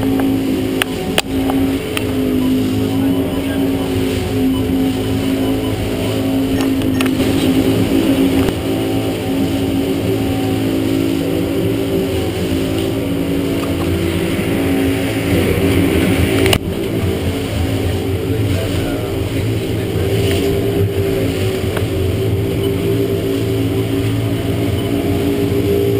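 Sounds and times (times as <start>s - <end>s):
outboard motors droning: 0.0s - 25.9s
wind: 0.0s - 25.9s
wake hissing: 10.5s - 18.3s.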